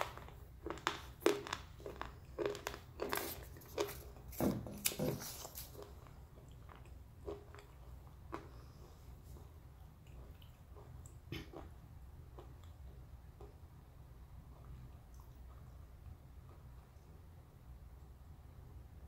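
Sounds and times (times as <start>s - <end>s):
person chewing crunchy pencil: 0.0s - 13.6s.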